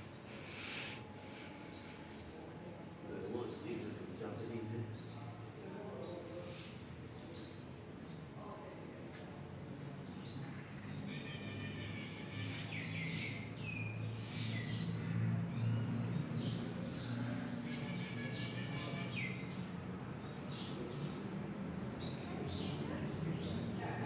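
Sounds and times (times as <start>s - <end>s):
birds chirping: 0.0s - 24.0s.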